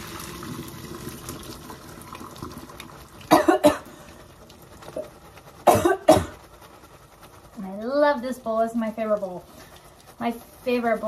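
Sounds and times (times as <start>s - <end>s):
water trickling from colander: 0.0s - 11.0s
person coughing: 3.3s - 4.0s, 5.7s - 6.4s.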